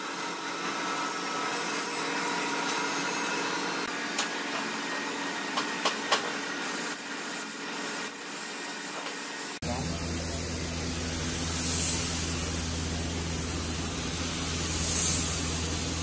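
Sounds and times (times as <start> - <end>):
low steady hum: 9.6 - 16.0
spray gun hissing: 9.6 - 16.0.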